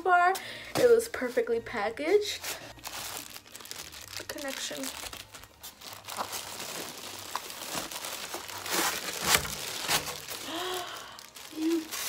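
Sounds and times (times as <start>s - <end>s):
plastic packaging crinkling: 2.4s - 12.0s.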